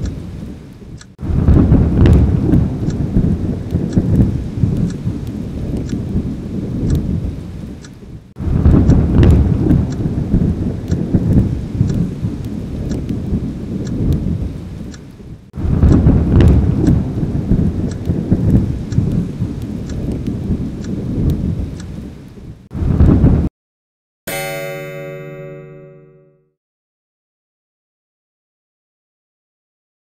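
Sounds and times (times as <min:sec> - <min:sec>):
fire crackling: 0:00.0 - 0:23.5
fire rumbling: 0:00.0 - 0:23.5.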